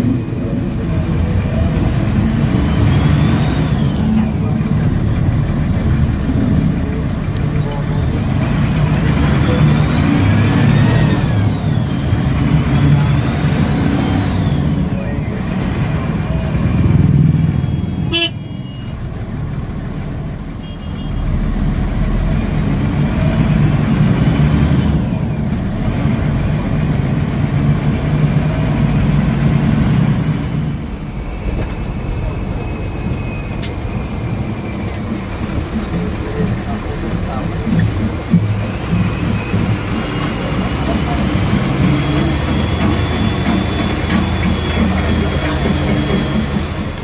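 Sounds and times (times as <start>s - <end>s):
bus engine running: 0.0s - 47.0s
vehicle horns tooting: 17.6s - 19.0s, 20.6s - 21.5s.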